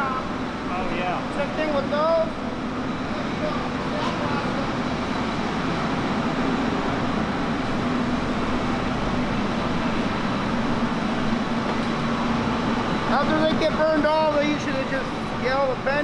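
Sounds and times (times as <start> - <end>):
low machinery hum: 0.0 - 16.0.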